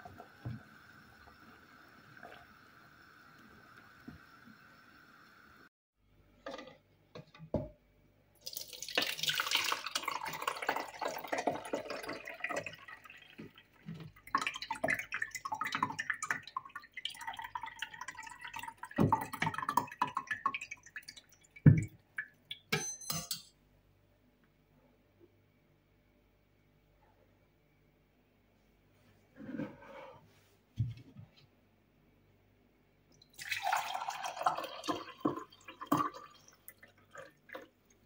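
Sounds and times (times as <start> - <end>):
liquid pouring through a sieve: 8.4 - 21.8, 33.3 - 37.8.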